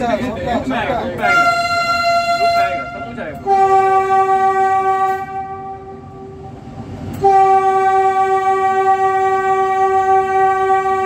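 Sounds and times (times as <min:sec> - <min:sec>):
train running noise: 0:00.0 - 0:11.0
train horn long note: 0:01.2 - 0:11.0.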